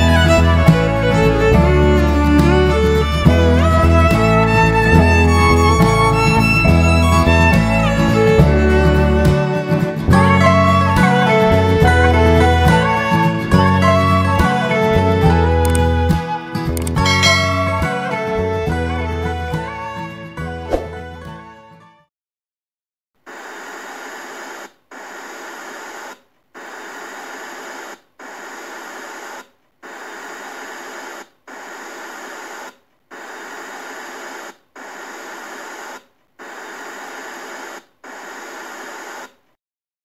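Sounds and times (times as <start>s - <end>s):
electronic static hiss bursts: 23.2s - 39.5s.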